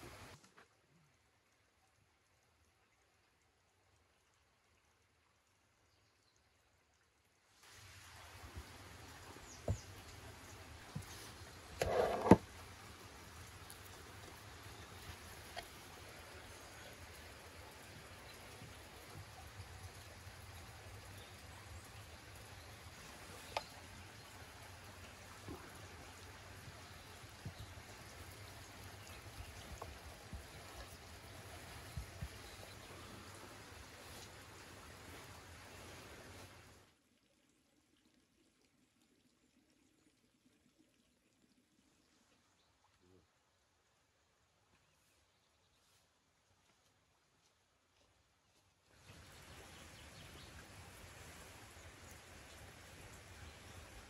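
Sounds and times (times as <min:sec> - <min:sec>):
outdoor hiss: 0:00.0 - 0:00.8, 0:07.5 - 0:36.9.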